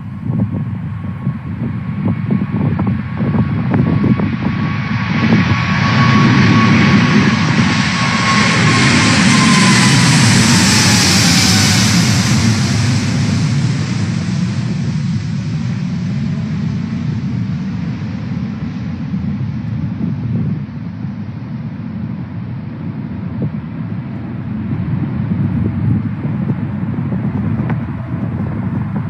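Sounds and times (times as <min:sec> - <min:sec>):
jet engines roaring overhead: 0:00.0 - 0:29.0
falling whining tone: 0:05.2 - 0:13.0.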